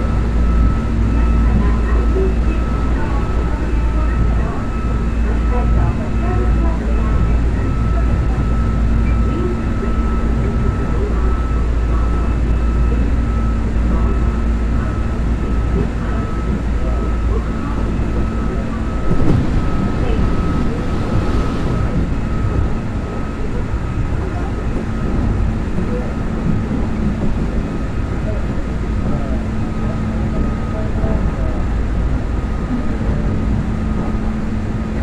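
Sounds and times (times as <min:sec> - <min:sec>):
thin steady hum: 0:00.0 - 0:35.0
train rattle: 0:13.3 - 0:35.0
train wheels rumbling on track: 0:13.3 - 0:35.0.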